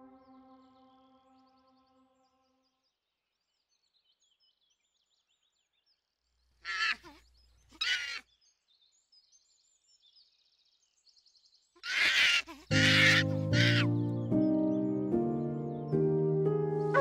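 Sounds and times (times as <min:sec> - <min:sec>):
faint bird chirping: 0:00.0 - 0:16.2
loud animal calls: 0:06.6 - 0:08.2, 0:11.8 - 0:13.9.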